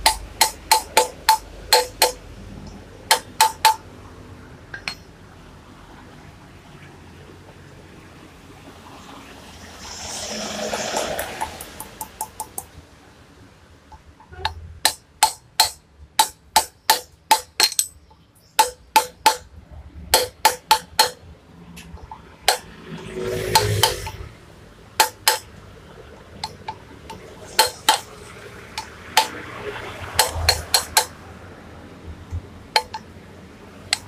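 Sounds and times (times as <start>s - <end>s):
hammer tapping on metal tube: 0.0s - 2.2s, 3.1s - 3.8s, 13.9s - 19.5s, 20.1s - 21.2s, 22.5s - 22.7s, 25.0s - 25.5s, 26.4s - 28.1s, 30.2s - 31.1s, 32.8s - 33.1s.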